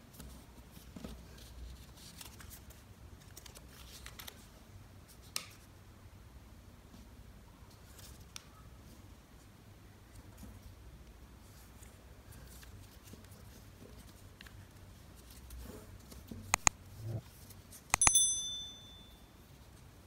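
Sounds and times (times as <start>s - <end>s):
paper rustling and crinkling: 0.2s - 4.5s
sharp click: 16.6s - 16.8s, 17.9s - 18.7s.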